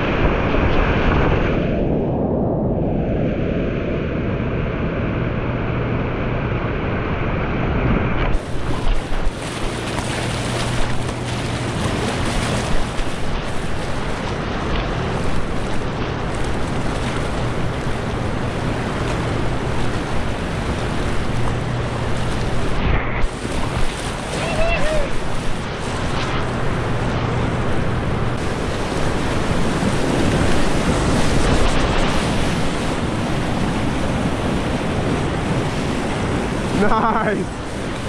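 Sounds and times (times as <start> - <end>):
wind buffeting microphone: 0.0 - 38.0
whitewater rapids rushing: 8.4 - 38.0.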